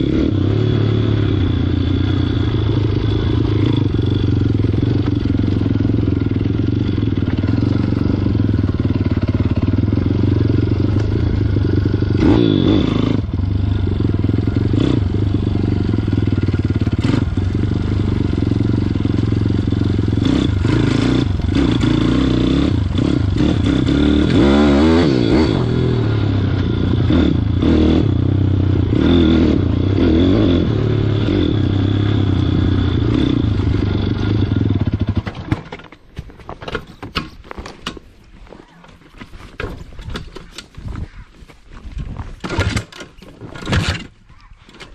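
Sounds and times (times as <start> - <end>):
motorbike engine revving: 0.0 - 35.8, 42.4 - 44.9
bike clattering over rough ground: 34.8 - 44.9.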